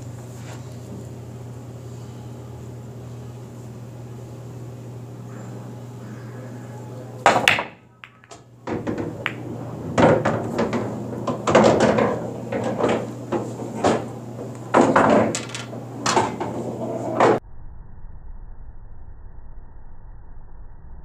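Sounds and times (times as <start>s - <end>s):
cue ball hitting racked balls: 7.2s - 17.4s
pool balls clacking: 7.2s - 17.4s.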